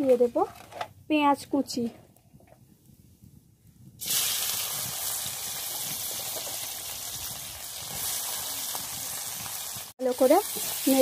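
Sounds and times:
onion sizzling in hot oil: 4.0 - 11.0.

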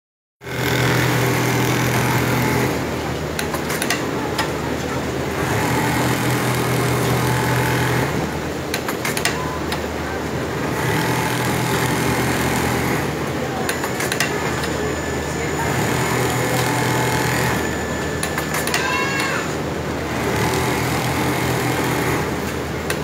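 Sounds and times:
sewing machine motor hum: 0.4 - 2.9, 5.2 - 8.4, 10.5 - 14.8, 15.6 - 23.0.

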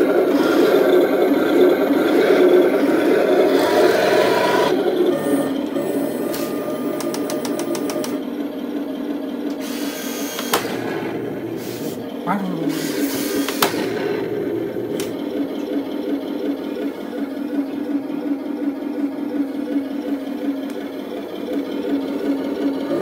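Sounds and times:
model tank motor whirring: 0.0 - 23.0
rapid clicks: 6.3 - 8.3.

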